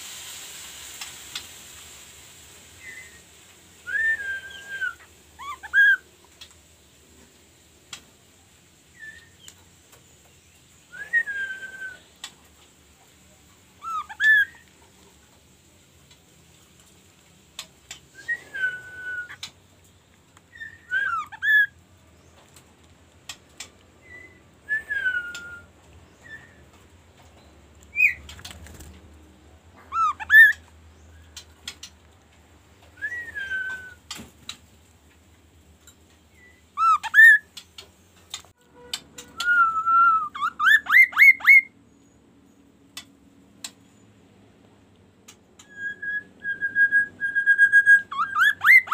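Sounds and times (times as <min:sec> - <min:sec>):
bird singing whistled phrases: 0:02.8 - 0:06.1, 0:08.9 - 0:09.5, 0:10.9 - 0:12.2, 0:13.8 - 0:14.7, 0:18.2 - 0:19.5, 0:20.5 - 0:21.8, 0:24.0 - 0:26.7, 0:27.9 - 0:28.2, 0:29.9 - 0:30.6, 0:33.0 - 0:34.2, 0:36.3 - 0:37.6, 0:39.2 - 0:42.2, 0:45.6 - 0:48.9.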